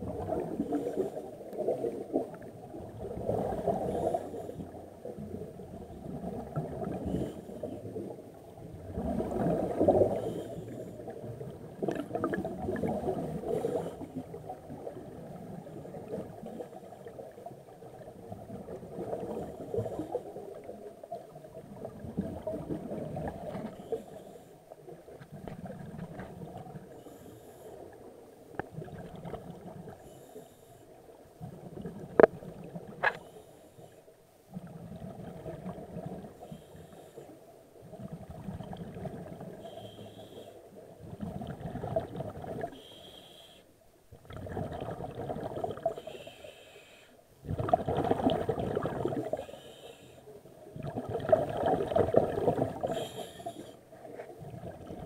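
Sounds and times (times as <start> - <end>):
exhaled bubbles rumbling: 0.0 - 23.9, 25.0 - 27.0, 28.5 - 30.0, 31.4 - 33.1, 34.5 - 36.4, 37.8 - 39.6, 40.9 - 42.8, 44.1 - 46.0, 47.4 - 49.5, 50.6 - 53.2, 54.0 - 55.0
scuba breathing underwater: 0.3 - 2.2, 3.1 - 4.8, 6.6 - 8.1, 9.0 - 14.4, 19.1 - 20.6, 23.3 - 24.8, 26.8 - 28.1, 29.9 - 31.0, 33.0 - 34.1, 36.3 - 37.5, 39.3 - 43.8, 44.4 - 54.1.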